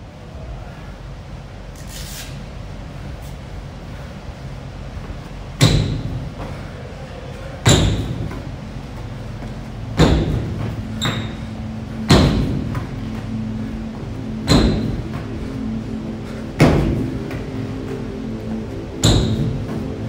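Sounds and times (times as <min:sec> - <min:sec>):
faint background music: 0:00.0 - 0:20.0
feet landing on wooden box: 0:05.6 - 0:06.6, 0:07.7 - 0:08.6, 0:09.4 - 0:13.3, 0:14.4 - 0:15.5, 0:16.6 - 0:17.5, 0:19.0 - 0:19.8.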